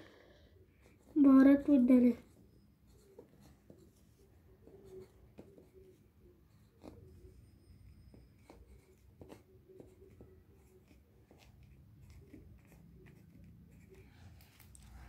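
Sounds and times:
pencil scratching on paper: 0:00.8 - 0:15.0.

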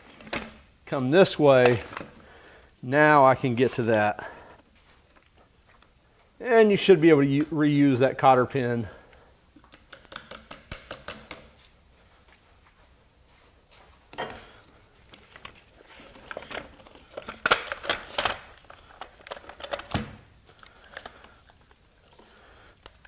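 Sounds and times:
cardboard crinkling: 0:15.0 - 0:21.9.

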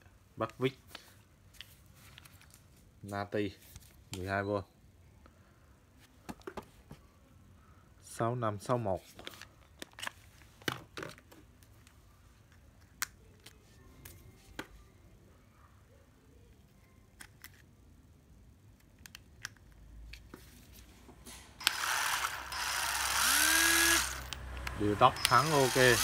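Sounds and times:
cordless screwdriver motor whirring: 0:21.6 - 0:26.0.

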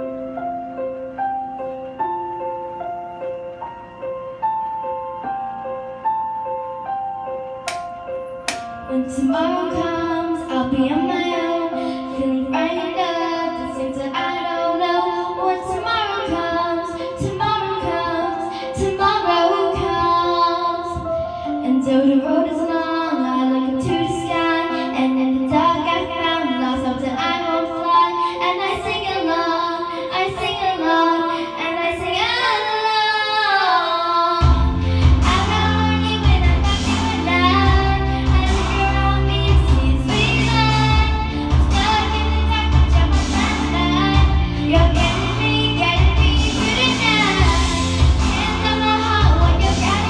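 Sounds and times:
instrumental backing track: 0:00.0 - 0:50.0
girl singing into microphone: 0:07.7 - 0:50.0
heavy low bass line: 0:34.4 - 0:50.0.

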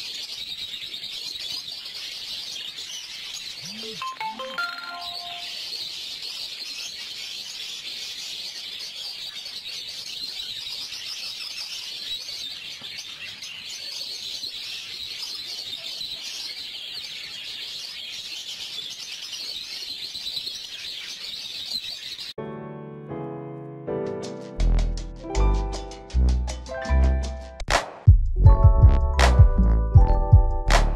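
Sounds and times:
budgerigars chattering and chirping: 0:00.0 - 0:04.0, 0:05.0 - 0:22.3.

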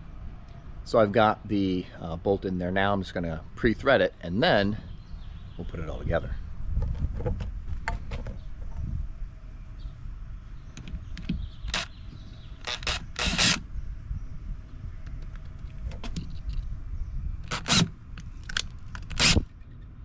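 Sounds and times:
cordless drill whirring: 0:12.6 - 0:13.6, 0:17.5 - 0:17.9, 0:19.1 - 0:19.5.

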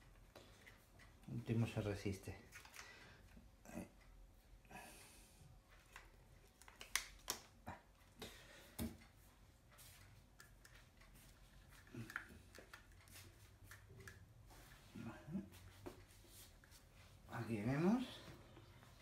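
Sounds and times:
light clicks and taps: 0:05.7 - 0:14.7.

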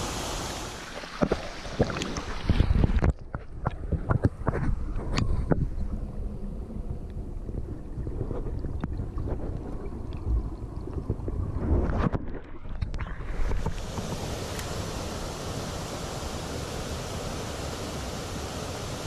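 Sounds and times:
stream rushing: 0:00.0 - 0:03.0, 0:13.2 - 0:19.0
stream heard underwater: 0:00.0 - 0:19.0.

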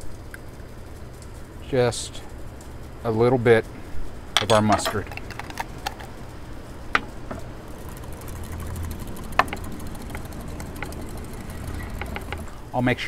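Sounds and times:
steady low hum: 0:00.0 - 0:13.0
spoon clicking against container: 0:07.8 - 0:12.5.

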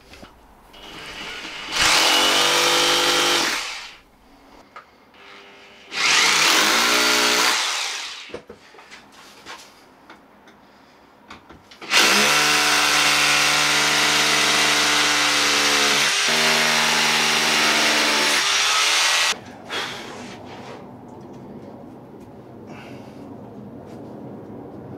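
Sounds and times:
power drill boring into brick: 0:00.8 - 0:04.0, 0:05.2 - 0:08.3, 0:11.8 - 0:19.4.

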